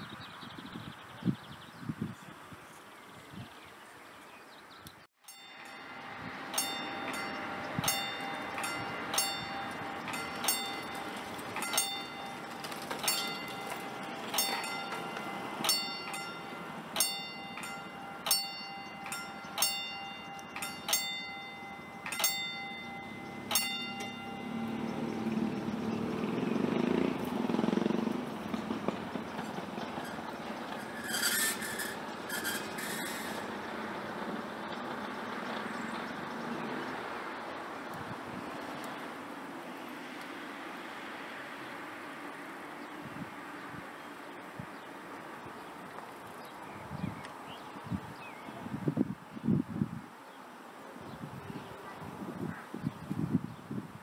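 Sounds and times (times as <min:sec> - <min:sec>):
level crossing warning bell: 0:05.2 - 0:34.5
train rumble: 0:05.3 - 0:49.2.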